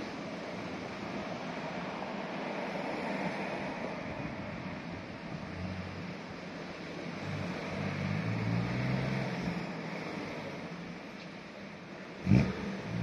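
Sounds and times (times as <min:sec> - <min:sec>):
road traffic rush: 0:00.0 - 0:13.0
car driving past: 0:07.2 - 0:10.9.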